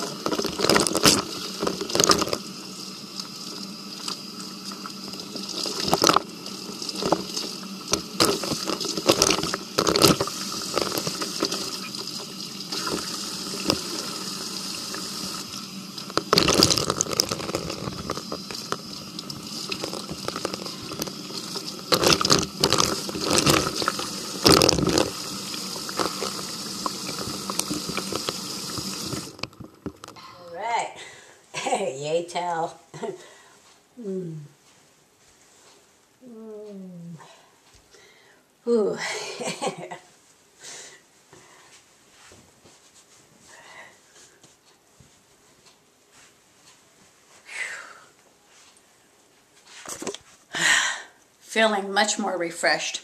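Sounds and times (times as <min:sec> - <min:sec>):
tap running into sink: 0:00.0 - 0:02.5, 0:03.2 - 0:30.2
water splashing on hair: 0:00.0 - 0:29.6.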